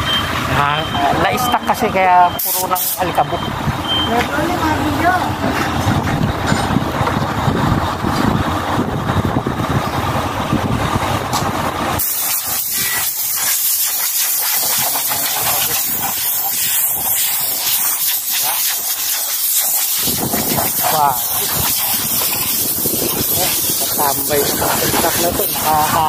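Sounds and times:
heavy engine running: 0.0 - 26.0
air blow gun hissing: 2.4 - 3.2, 12.0 - 26.0.

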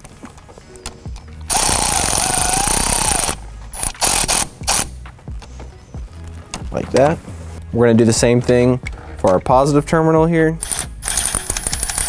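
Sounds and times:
cordless ratchet motor whine: 1.5 - 5.0, 10.6 - 12.0
ratchet short bursts: 1.5 - 5.0, 10.6 - 12.0.

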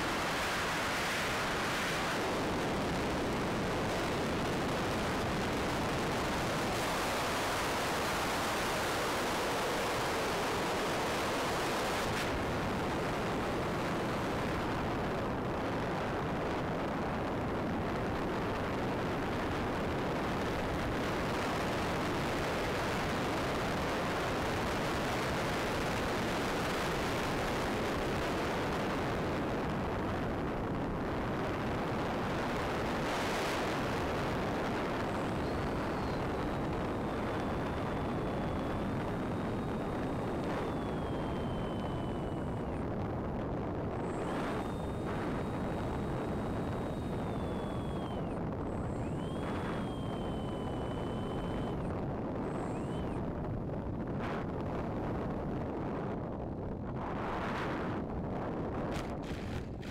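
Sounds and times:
wind noise on microphone: 0.0 - 59.9.

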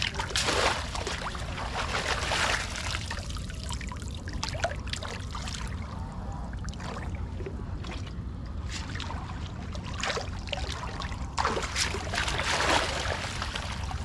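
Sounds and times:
steady low rumble: 0.0 - 14.0
water trickling and splashing: 0.0 - 14.0.

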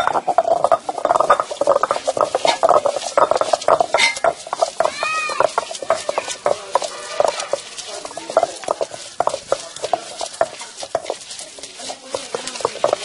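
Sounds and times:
stone pestle grinding and knocking: 0.0 - 13.0.

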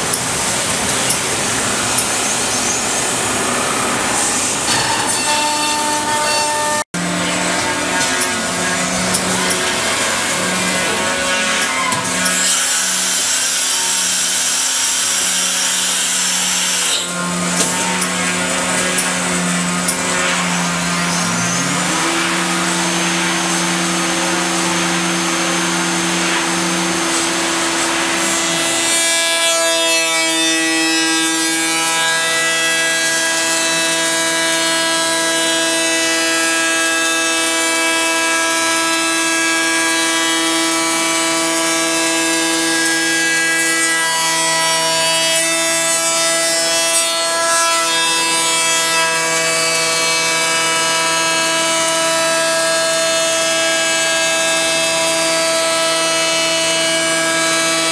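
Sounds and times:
machine whine: 0.0 - 12.5, 16.0 - 28.9.

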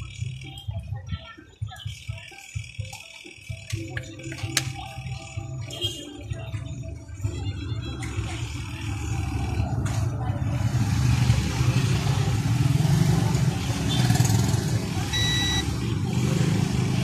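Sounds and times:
multimeter continuity beep: 15.1 - 15.8.

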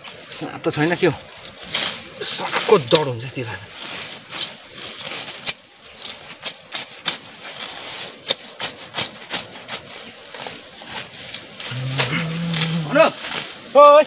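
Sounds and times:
leaves rustling: 0.0 - 14.0
grass stems snapping: 1.4 - 3.1, 3.8 - 9.5, 10.3 - 13.6.

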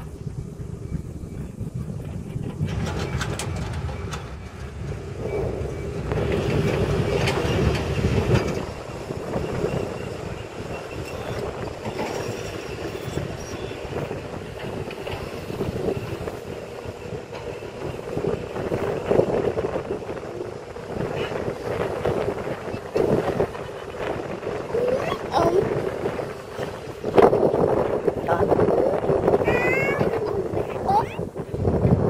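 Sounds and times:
excavator engine and hydraulics: 0.0 - 32.0.

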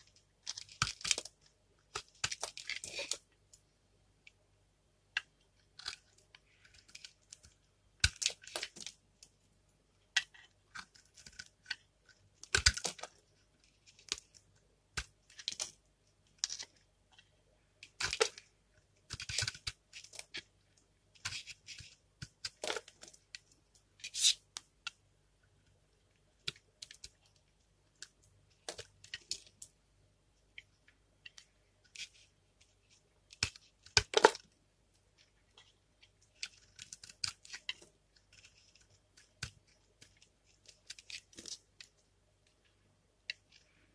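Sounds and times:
knife scraping hard soap: 10.2 - 14.2.

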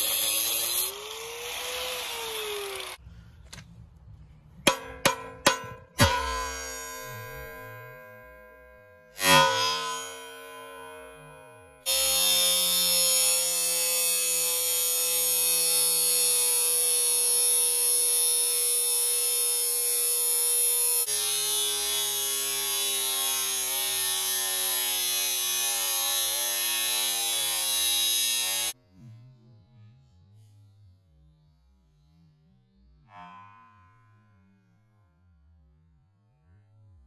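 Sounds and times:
electric motor whining: 0.0 - 3.0.

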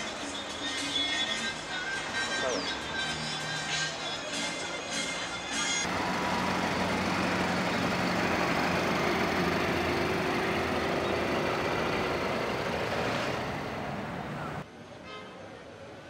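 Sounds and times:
outdoor noise: 0.0 - 16.0
steady engine hum: 5.8 - 14.6.

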